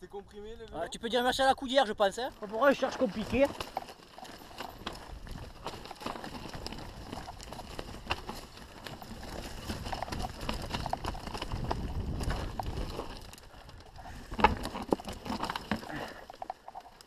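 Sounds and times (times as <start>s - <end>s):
tyres crunching over stones: 0.7s - 17.0s
bike knocks and clatter: 2.6s - 13.4s.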